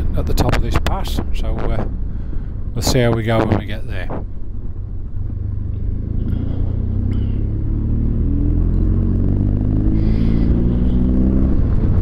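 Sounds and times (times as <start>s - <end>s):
motorcycle engine accelerating: 2.8s - 12.0s.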